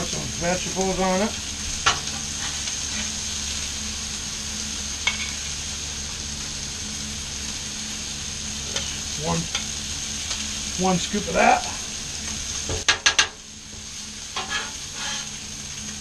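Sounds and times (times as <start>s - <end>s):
food sizzling on griddle: 0.0s - 16.0s
metal spatula scooping: 14.4s - 15.4s.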